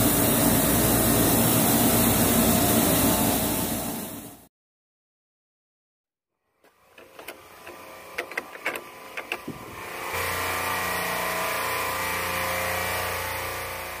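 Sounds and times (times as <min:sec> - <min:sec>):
loud drone with hiss: 0:00.0 - 0:04.4, 0:09.1 - 0:14.0
sharp clicks and ticks: 0:07.0 - 0:09.5.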